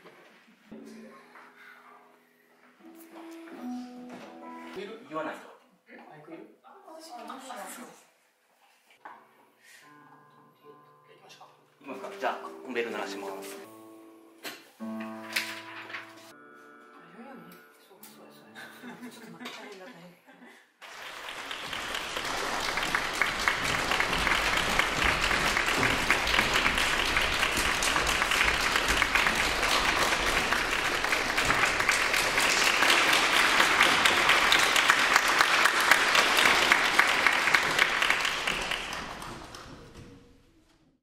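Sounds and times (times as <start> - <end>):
audience applauding: 20.8 - 40.0.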